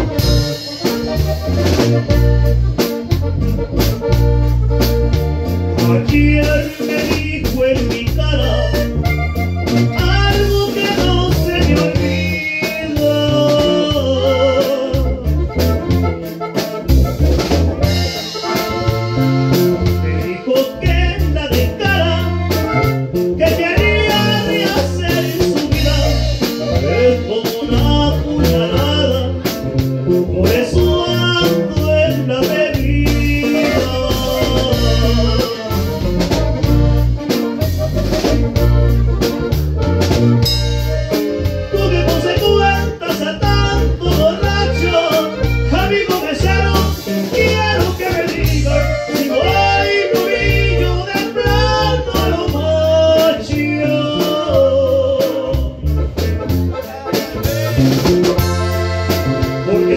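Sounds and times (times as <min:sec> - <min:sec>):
live band music: 0:00.0 - 0:59.9
man singing: 0:05.8 - 0:15.8, 0:19.7 - 0:36.5, 0:40.7 - 0:58.5, 0:59.2 - 0:59.9.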